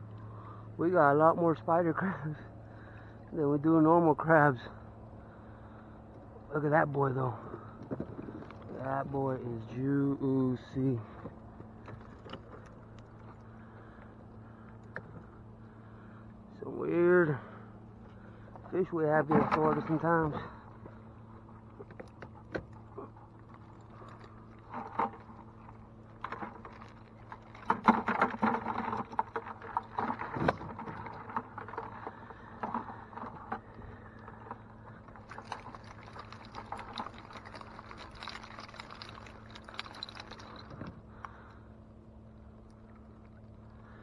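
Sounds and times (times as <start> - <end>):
low steady hum: 0.0 - 44.0
water splashing and dripping: 35.0 - 40.9
wire mesh trap rattling: 35.3 - 40.8.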